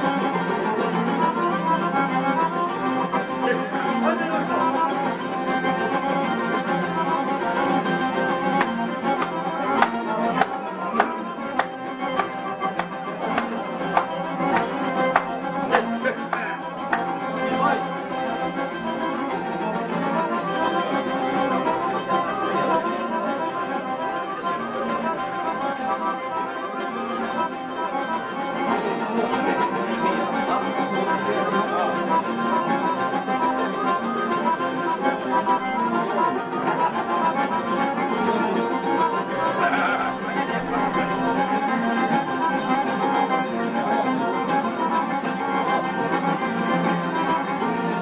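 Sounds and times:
accordion chords: 0.0 - 48.0
plucked lutes: 0.0 - 48.0.

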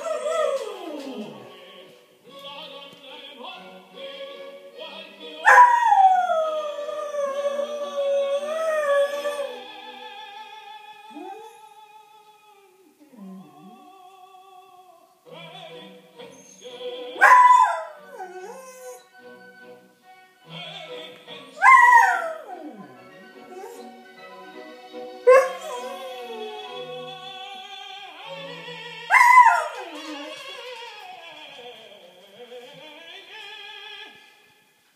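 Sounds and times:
dog howling: 0.0 - 1.6, 5.4 - 9.7, 11.1 - 11.8, 16.4 - 19.1, 21.6 - 24.0, 25.3 - 27.2, 28.6 - 31.0
opera music from television: 0.0 - 34.9.

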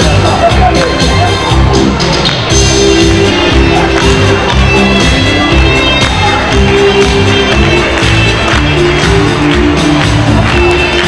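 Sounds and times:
loud music with beat and bass: 0.0 - 11.0.

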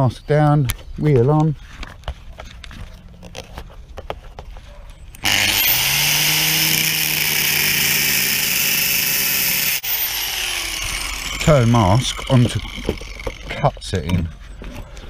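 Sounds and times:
angle grinder cutting steel: 5.2 - 13.8.

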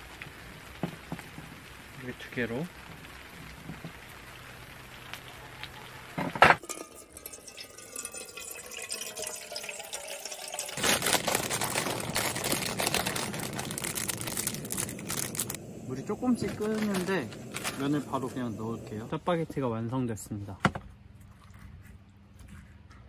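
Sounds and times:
water pouring into metal pot: 6.6 - 15.6
even rushing hiss: 14.5 - 19.4.

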